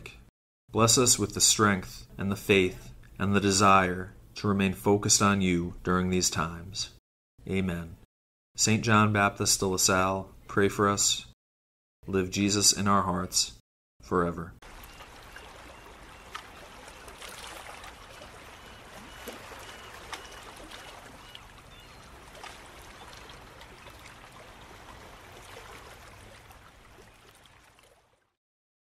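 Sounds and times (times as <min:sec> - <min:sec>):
small splashes: 0:14.6 - 0:28.3
trickling water: 0:14.6 - 0:28.4.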